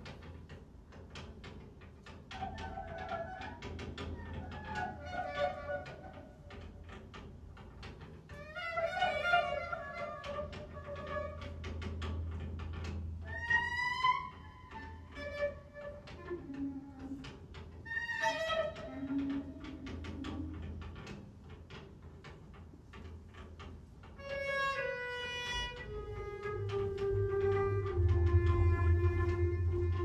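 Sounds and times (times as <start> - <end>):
low electronic hum: 26.5 - 30.0.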